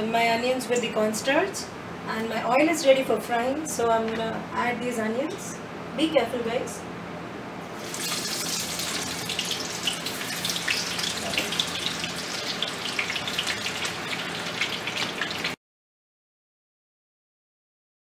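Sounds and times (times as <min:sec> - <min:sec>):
onions sizzling in hot oil: 0:07.8 - 0:15.6.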